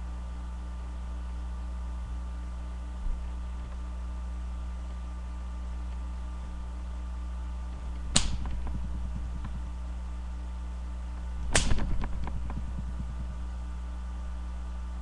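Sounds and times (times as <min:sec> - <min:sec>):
steady low hum: 0:00.0 - 0:15.0
sharp knocks: 0:08.1 - 0:08.8.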